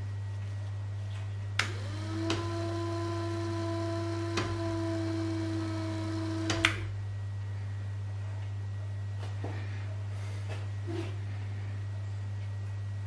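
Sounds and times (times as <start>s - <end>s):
low mains hum: 0.0s - 13.0s
electric gear motor whining: 1.6s - 6.9s
switch click: 6.4s - 6.9s.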